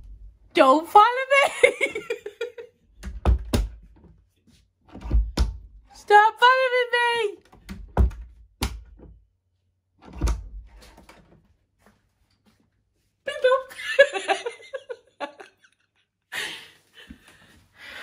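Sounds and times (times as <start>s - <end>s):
dull thumps and knocks: 3.0s - 4.2s, 4.9s - 5.8s.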